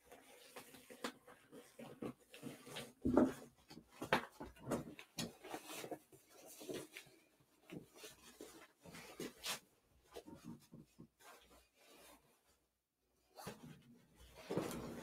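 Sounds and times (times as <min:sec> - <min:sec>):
fabric rustling and rubbing: 0:05.3 - 0:15.0.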